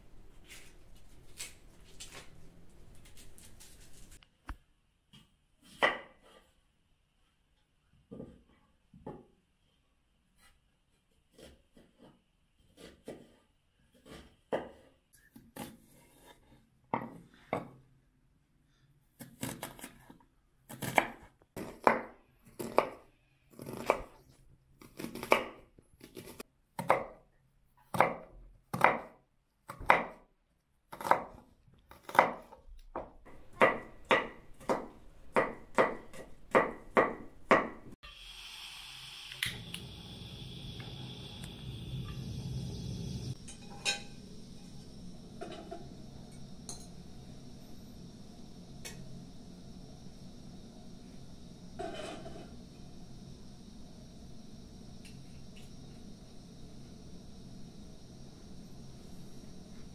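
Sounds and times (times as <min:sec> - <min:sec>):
knife chopping on wooden board: 0:27.9 - 0:29.1, 0:31.0 - 0:37.8
gas burner hissing: 0:33.3 - 0:59.9.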